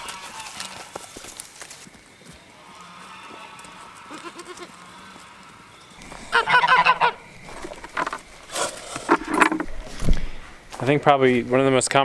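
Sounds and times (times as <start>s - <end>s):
waterfowl calling: 5.9s - 10.6s.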